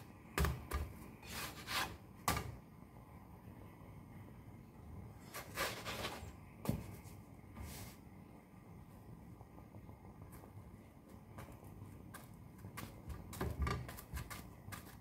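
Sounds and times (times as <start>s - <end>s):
spatula scraping in frying pan: 1.2s - 2.0s.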